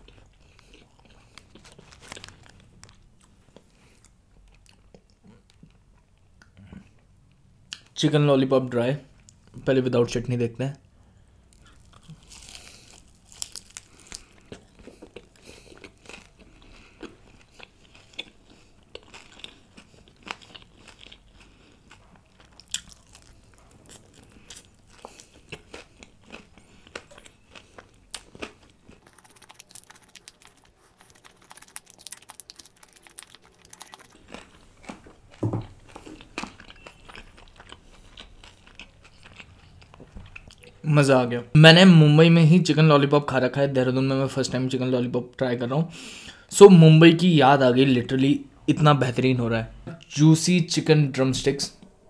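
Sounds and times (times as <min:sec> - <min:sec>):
crunchy chewing: 0:00.0 - 0:06.1, 0:11.5 - 0:40.8.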